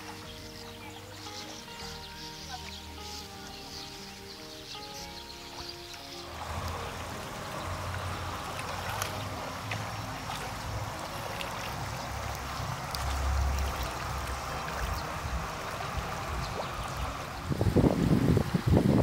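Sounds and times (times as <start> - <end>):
water wash of river: 0.0 - 19.0
low rumble: 6.2 - 19.0.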